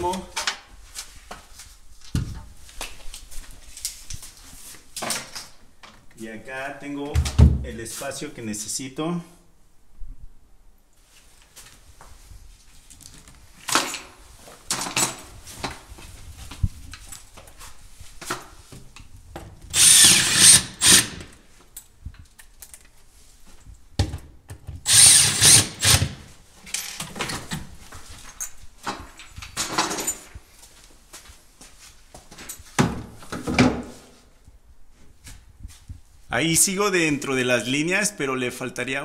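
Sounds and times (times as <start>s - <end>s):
power drill driving screws: 19.7s - 21.3s, 24.9s - 26.2s.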